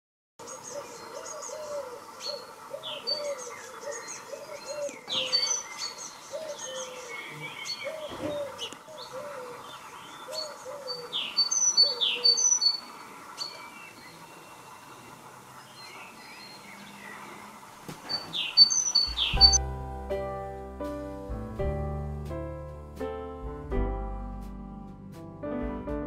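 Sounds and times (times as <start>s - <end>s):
birds chirping and whistling: 0.4s - 19.6s
low repeated bird call: 0.4s - 19.6s.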